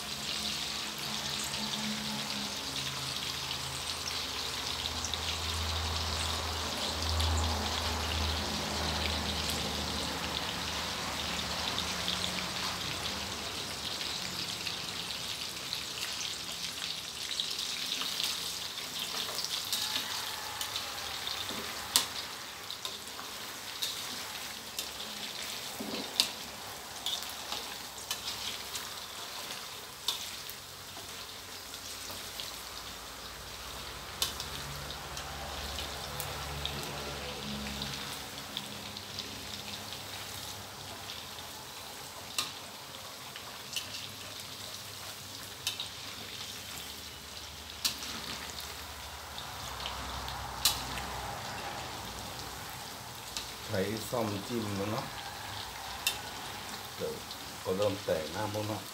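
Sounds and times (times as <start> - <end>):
sausages sizzling in oil: 0.0 - 58.9
ladle clicking on wok: 50.6 - 50.9.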